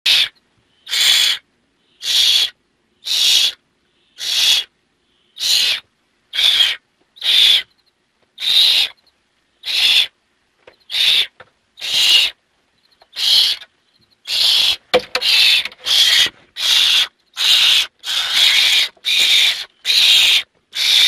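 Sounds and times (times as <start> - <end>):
owlet hissing screech: 0.9 - 1.4, 4.2 - 4.7, 5.4 - 5.8, 6.4 - 7.7, 8.4 - 9.0, 9.6 - 10.1, 10.9 - 12.4, 13.2 - 13.6, 14.3 - 21.0.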